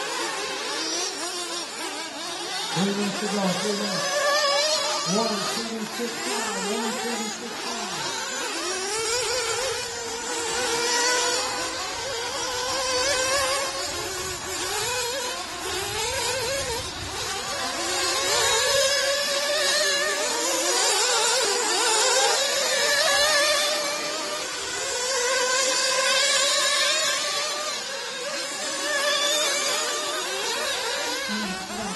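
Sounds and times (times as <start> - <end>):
model buggy engines buzzing: 0.0 - 31.9.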